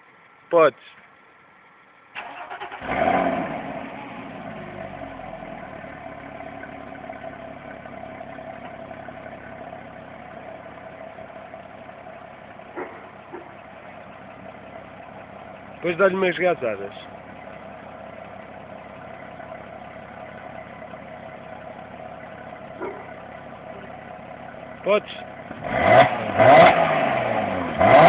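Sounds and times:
car engine starting and idling: 0.0 - 28.0
starter motor cranking: 2.2 - 3.1.

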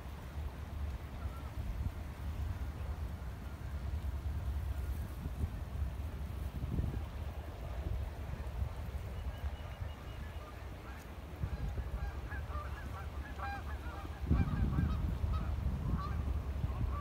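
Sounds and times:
wind rumble on microphone: 0.0 - 17.0
waterfowl calling: 9.2 - 17.0.

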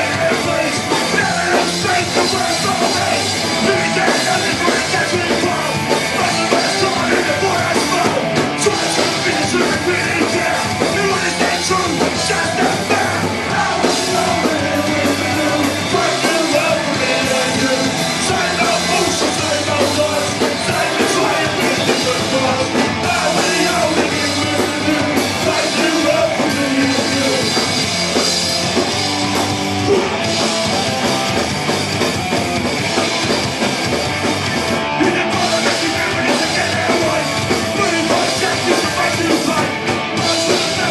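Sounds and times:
shouted lead vocal: 0.0 - 27.8, 28.8 - 30.9, 34.8 - 40.9
punk rock band playing: 0.0 - 40.9.

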